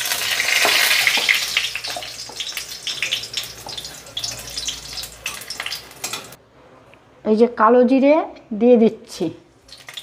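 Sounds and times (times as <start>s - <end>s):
chilli sizzling in hot oil: 0.0s - 6.4s, 9.6s - 10.0s.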